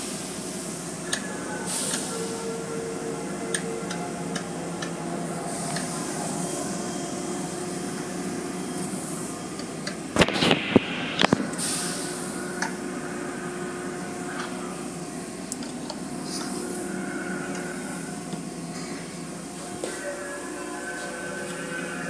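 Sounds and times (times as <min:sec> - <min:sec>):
car wash spraying water and machinery: 0:00.0 - 0:22.0.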